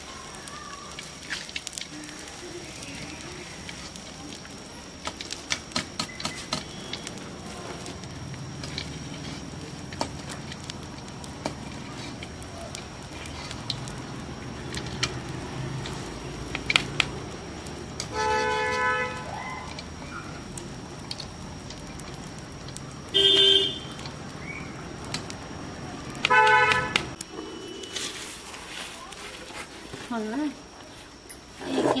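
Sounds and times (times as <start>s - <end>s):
horn sounding: 23.2s - 23.9s, 26.3s - 27.0s.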